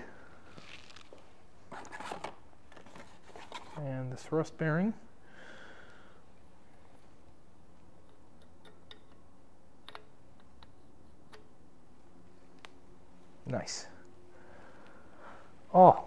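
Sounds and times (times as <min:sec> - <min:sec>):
low shop hum: 0:00.0 - 0:16.0
metal on metal clicks: 0:08.0 - 0:09.2, 0:09.8 - 0:11.5.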